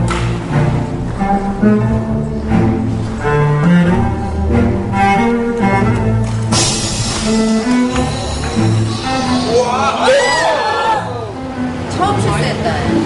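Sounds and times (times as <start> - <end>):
bright crash-like wash: 0.0 - 10.1
low bowed strings melody: 0.0 - 13.0.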